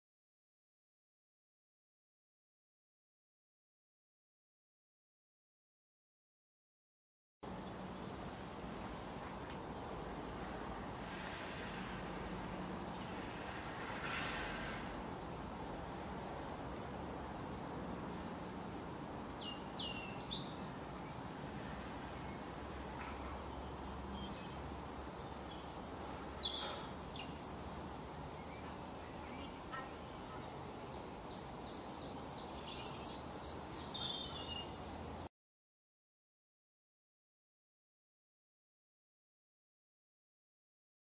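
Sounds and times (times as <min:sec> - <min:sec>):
outdoor background rumble: 0:07.4 - 0:35.3
songbirds chirping: 0:07.4 - 0:35.3.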